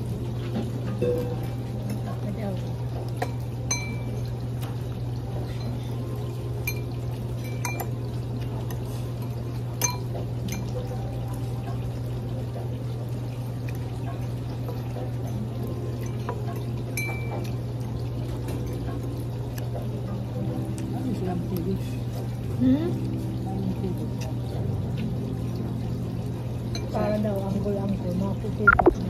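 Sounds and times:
cutlery clinking against dishes: 9.8 - 11.0, 16.0 - 17.6.

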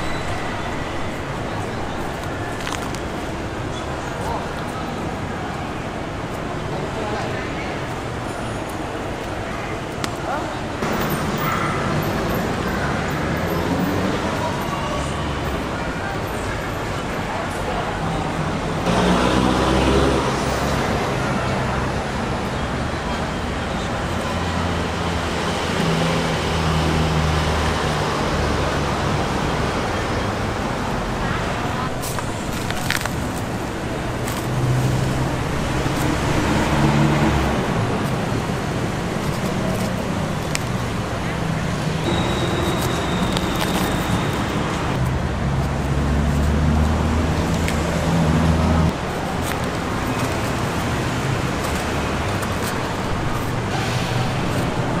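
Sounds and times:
street traffic noise: 0.0 - 55.0
vehicle engine humming: 18.5 - 55.0.

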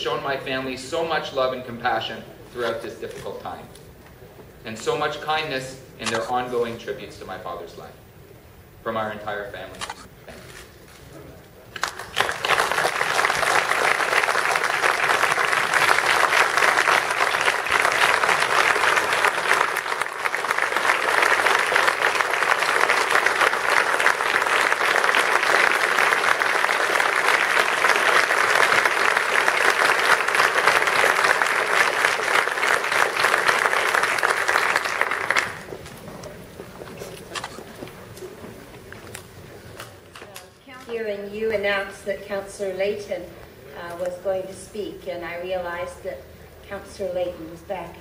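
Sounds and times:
crowd applauding: 11.8 - 40.0.

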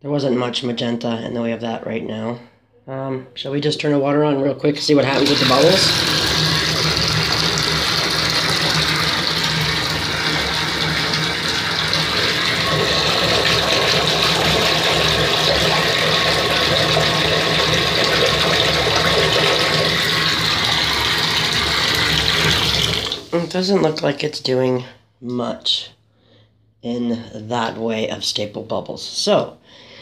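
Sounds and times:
bathtub tap running: 5.1 - 23.4.

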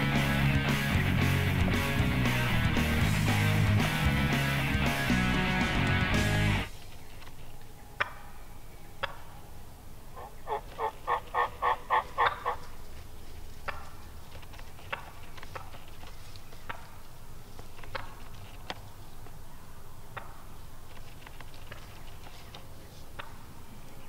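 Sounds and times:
wild turkey yelping: 7.4 - 18.2
turkey clucks: 7.6 - 9.5, 10.1 - 19.4, 20.0 - 20.6, 21.3 - 24.0.

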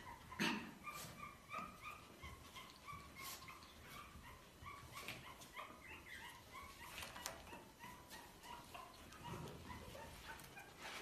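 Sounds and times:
puppies whimpering and squeaking: 0.0 - 11.0.

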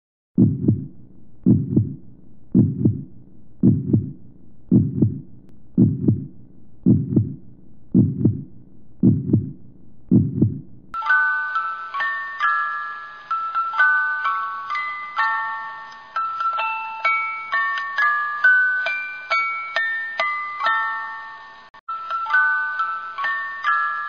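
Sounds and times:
heartbeat thumps: 0.4 - 10.8
chiming glockenspiel-like tune: 11.0 - 24.0.

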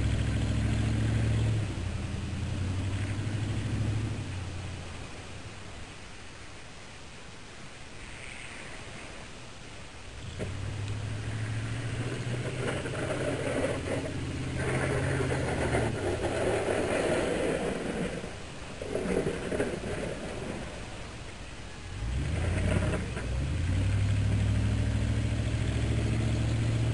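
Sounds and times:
truck engine running under load: 0.0 - 5.1, 10.2 - 26.9
snow plow pushing snow: 0.0 - 5.4, 10.1 - 26.9.

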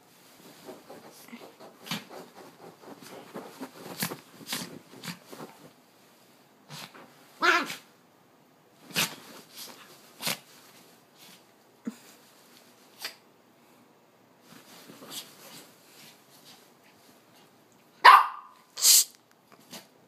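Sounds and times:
pillow rustling: 0.0 - 6.9
dog yelp: 18.0 - 18.6.

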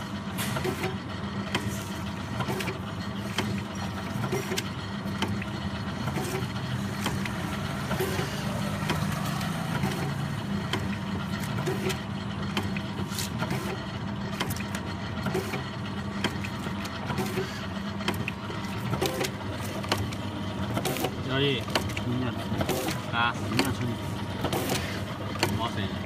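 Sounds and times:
packing machine hum: 0.0 - 26.0.

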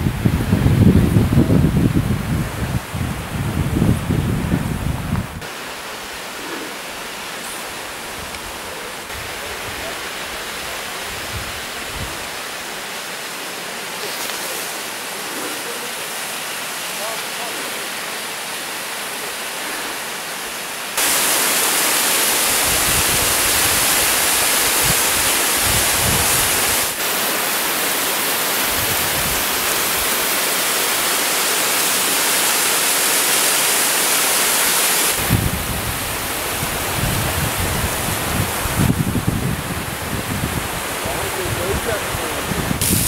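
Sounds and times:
wind buffeting microphone: 0.0 - 5.5, 11.0 - 12.4, 22.4 - 27.0, 28.7 - 30.1, 35.1 - 43.0
waterfall rushing: 5.3 - 43.0.

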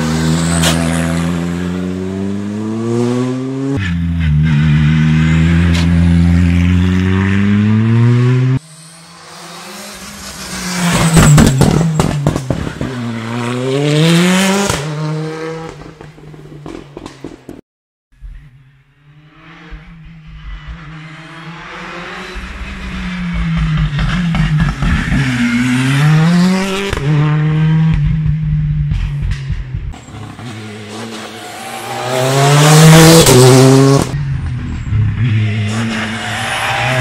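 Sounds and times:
rally car engine revving past: 0.0 - 16.0, 30.0 - 34.2.

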